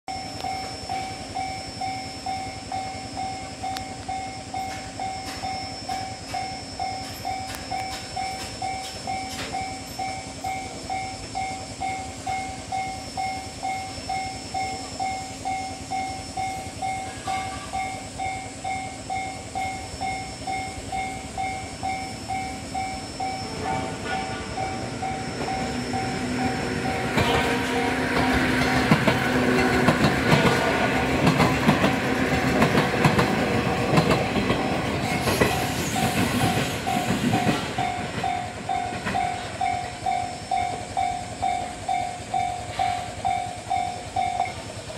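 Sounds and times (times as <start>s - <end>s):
electric train running: 0.1s - 44.9s.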